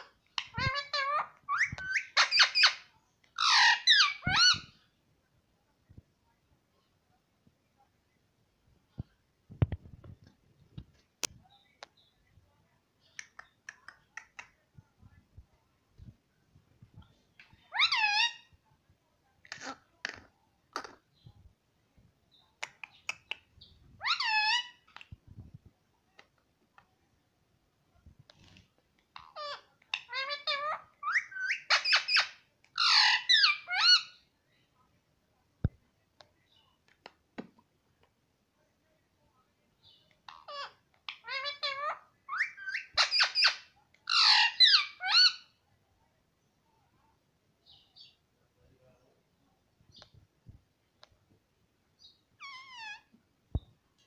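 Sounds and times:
parrot calling: 0:00.0 - 0:04.8, 0:17.7 - 0:18.5, 0:24.0 - 0:25.1, 0:29.1 - 0:34.2, 0:40.3 - 0:45.5, 0:52.4 - 0:53.1.

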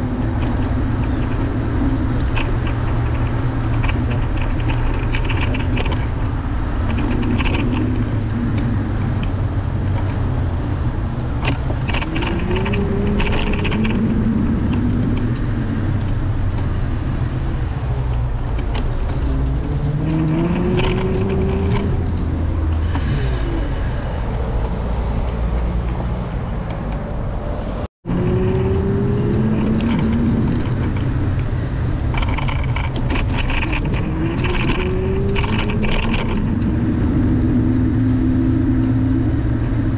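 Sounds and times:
passing vehicle engines: 0:00.0 - 0:39.9
street traffic rumble: 0:00.0 - 0:39.9.

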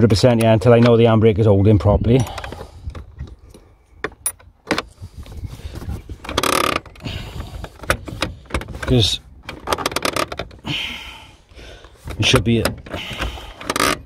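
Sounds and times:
handbrake ratchet clicking: 0:06.2 - 0:10.7, 0:11.8 - 0:14.0.

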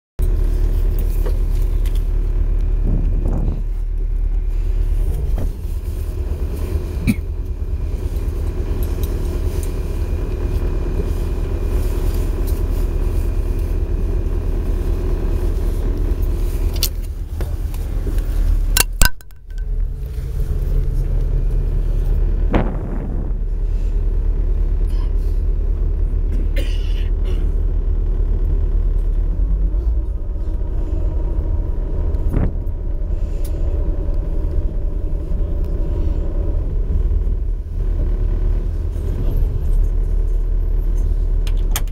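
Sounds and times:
boat engine rumbling: 0:00.2 - 0:41.9
water washing along hull: 0:00.4 - 0:25.9.

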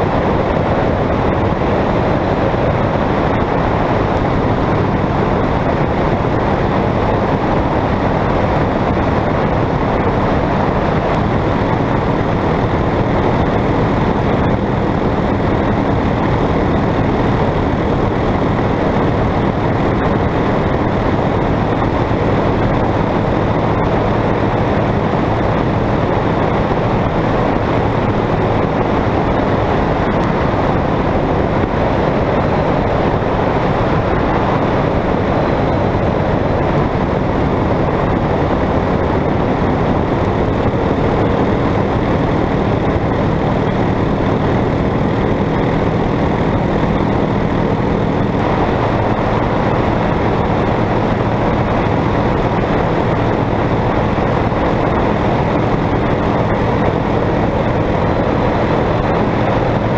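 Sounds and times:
light aircraft engine drone: 0:00.0 - 0:59.9
rushing air: 0:00.0 - 0:59.9.

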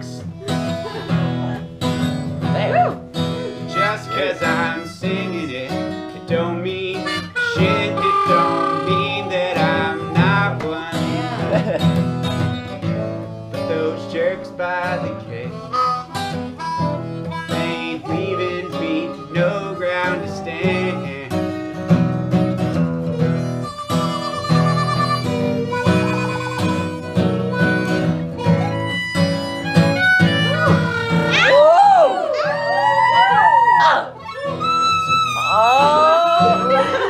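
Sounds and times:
banjo picking: 0:00.0 - 0:05.7, 0:14.7 - 0:31.4, 0:34.3 - 0:37.0
harmonica lead: 0:00.0 - 0:32.2, 0:34.1 - 0:37.0
acoustic guitar strumming: 0:00.0 - 0:37.0.

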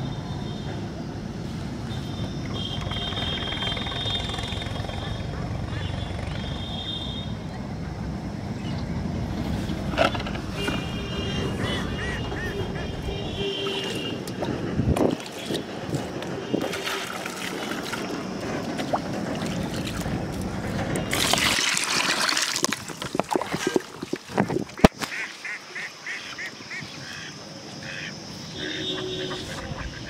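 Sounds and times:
water sloshing and trickling: 0:08.8 - 0:25.9
bird calling: 0:10.6 - 0:14.1, 0:24.8 - 0:30.0
water splash: 0:15.0 - 0:25.3.

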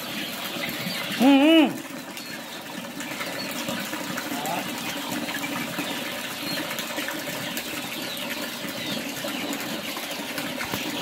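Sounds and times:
chicks chirping and peeping: 0:00.0 - 0:11.0.

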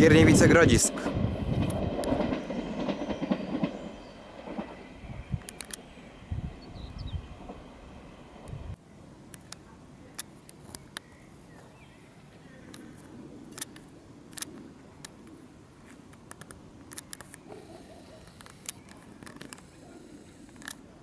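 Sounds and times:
camera handling clicks: 0:05.4 - 0:05.8.

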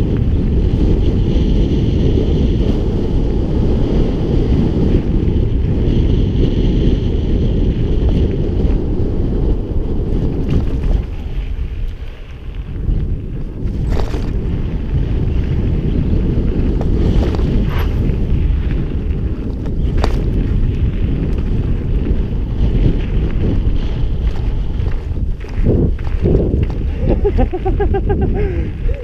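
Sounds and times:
bike clicking over bumps: 0:00.0 - 0:29.0
wind buffeting microphone: 0:00.0 - 0:29.0
tyres rolling on gravel: 0:16.2 - 0:29.0.

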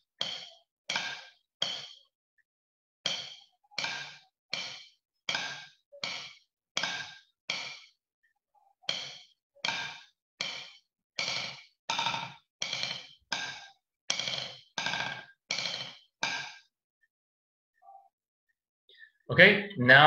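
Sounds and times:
drumsticks striking practice pad: 0:03.1 - 0:07.9.

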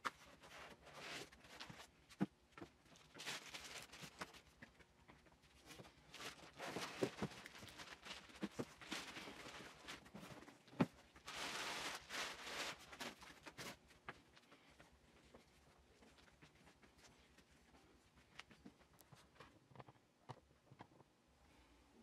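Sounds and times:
plastic bag crinkling: 0:02.8 - 0:04.6, 0:05.6 - 0:13.8.

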